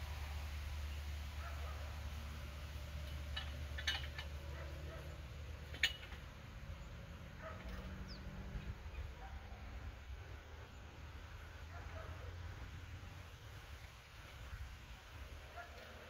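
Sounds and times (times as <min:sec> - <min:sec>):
sharp clicks and knocks: 0:03.0 - 0:04.4, 0:05.6 - 0:06.3.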